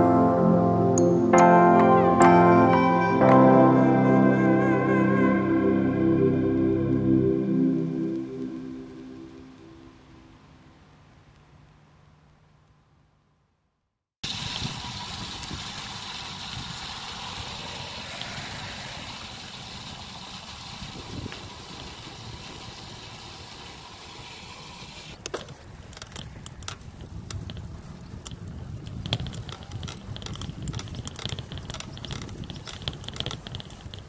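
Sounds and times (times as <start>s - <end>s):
bicycle rolling rumble: 14.3s - 34.0s
bicycle clicks and rattles: 25.1s - 34.0s.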